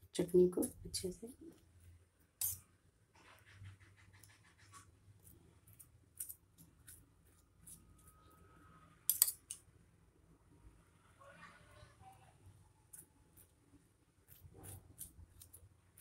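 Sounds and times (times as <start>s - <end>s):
spoon clattering: 2.4s - 2.6s, 9.1s - 9.6s
spoon scraping on bread: 2.4s - 8.4s, 9.1s - 9.6s, 12.9s - 13.6s, 14.2s - 16.0s.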